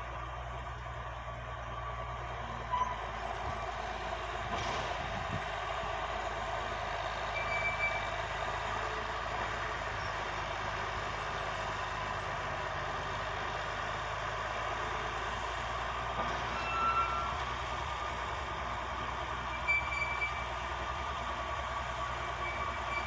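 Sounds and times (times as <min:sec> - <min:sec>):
dragline engine running under load: 0:00.0 - 0:23.0
high squeak: 0:02.7 - 0:03.0, 0:07.4 - 0:08.1, 0:16.6 - 0:17.3, 0:19.6 - 0:20.5, 0:22.4 - 0:23.0.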